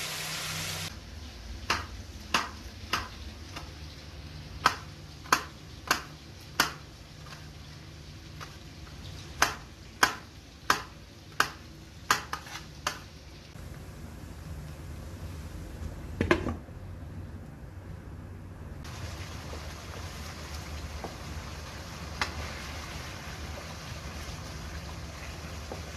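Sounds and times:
low steady hum: 0:13.3 - 0:25.9.

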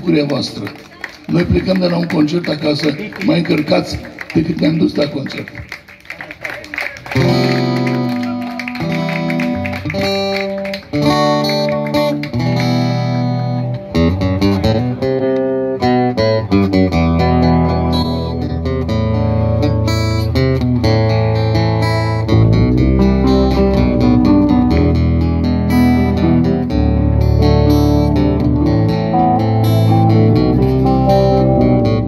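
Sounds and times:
live band playing: 0:06.4 - 0:32.0
guitar chords: 0:07.2 - 0:32.0
deep bass line: 0:10.9 - 0:32.0.

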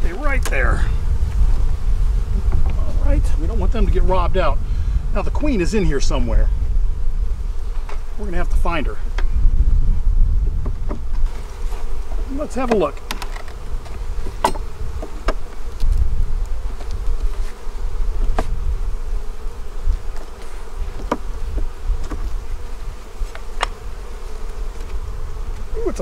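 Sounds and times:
bees humming: 0:00.0 - 0:26.0
hive tool prying frames: 0:10.6 - 0:16.0, 0:16.7 - 0:18.6, 0:19.4 - 0:25.7.

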